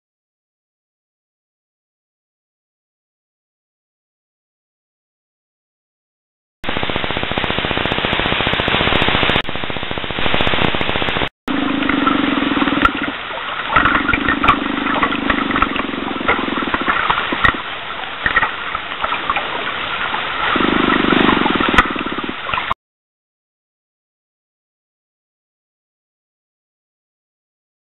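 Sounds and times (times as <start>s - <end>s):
steady low hum underwater: 6.6s - 22.7s
crackling clicks: 10.1s - 17.6s, 18.2s - 19.4s.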